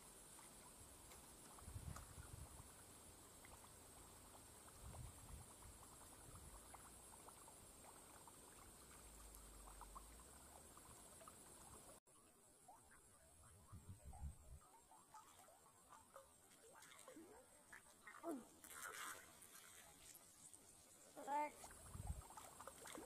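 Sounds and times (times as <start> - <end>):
small ticks: 0.0 - 12.0.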